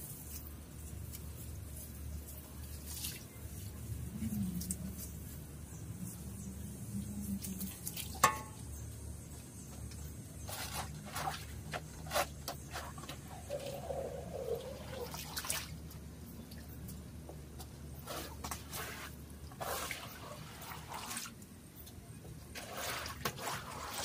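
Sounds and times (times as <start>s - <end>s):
water dripping and splashing: 0.2s - 5.2s, 6.9s - 8.7s, 13.0s - 24.0s.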